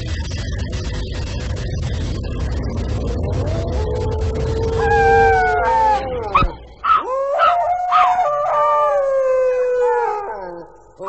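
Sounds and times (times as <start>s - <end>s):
low rumble: 0.0s - 8.5s
dog howling: 3.2s - 10.9s
dog yipping: 6.3s - 8.1s.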